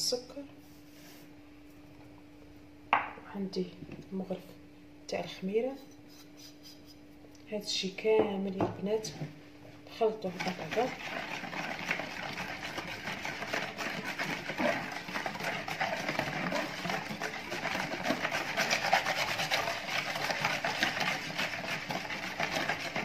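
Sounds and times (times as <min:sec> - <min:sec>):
whisk beating liquid in plastic bowl: 0:10.1 - 0:23.0.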